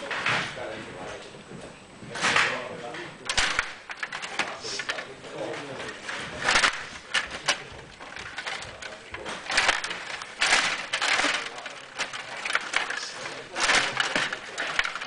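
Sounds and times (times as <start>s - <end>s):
table hockey game clattering: 2.1s - 15.0s
rods sliding and spinning: 3.3s - 15.0s.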